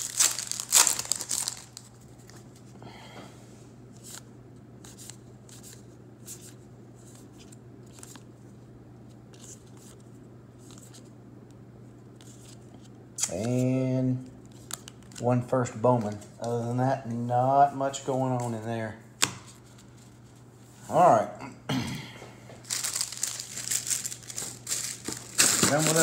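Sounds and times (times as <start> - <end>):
wrapper crinkling: 0.0 - 2.4, 22.6 - 26.0.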